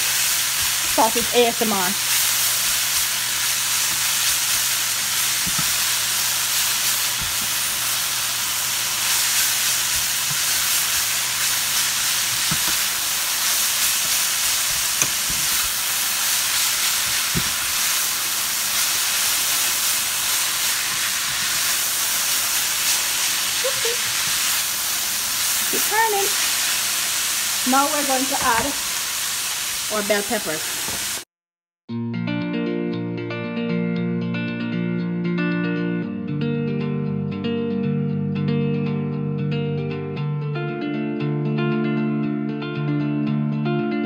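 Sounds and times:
vegetables sizzling in skillet: 0.0s - 31.3s
spatula knocking pan: 12.3s - 12.8s.

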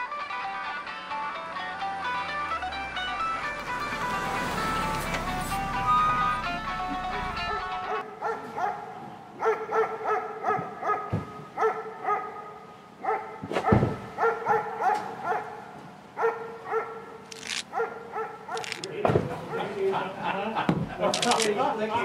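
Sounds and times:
dog barking: 7.5s - 19.8s.

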